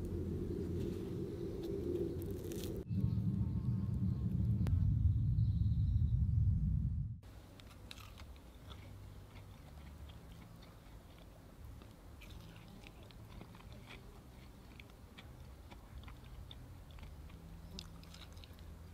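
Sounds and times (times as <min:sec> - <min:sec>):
loud low buzz: 0:00.0 - 0:07.5
crunchy chewing: 0:01.6 - 0:02.9, 0:07.5 - 0:18.9.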